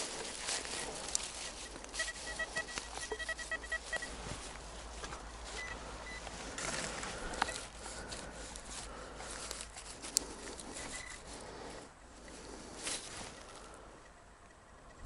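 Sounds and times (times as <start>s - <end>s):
rustling and scraping of leaves: 0.0s - 13.9s
metal detector beeps: 0.5s - 4.4s, 5.5s - 6.3s, 7.3s - 7.7s, 10.8s - 11.2s.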